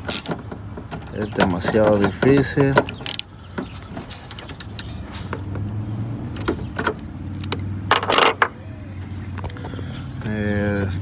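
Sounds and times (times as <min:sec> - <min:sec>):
socket ratchet clicks and clinks: 0:04.1 - 0:04.9.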